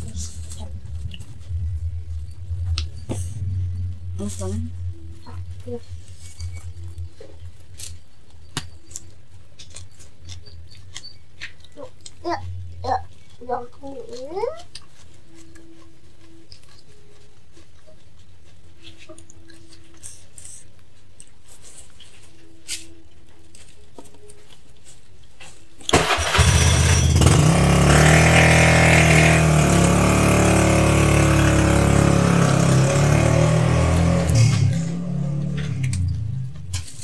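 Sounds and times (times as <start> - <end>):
engine running loudly: 26.2 - 36.5.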